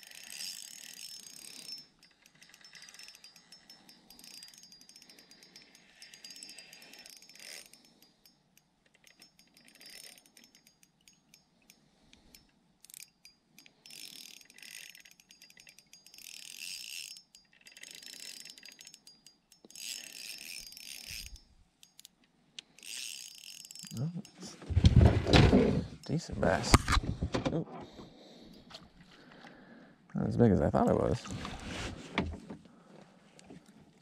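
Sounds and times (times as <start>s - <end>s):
fishing reel whirring: 0.0s - 24.5s.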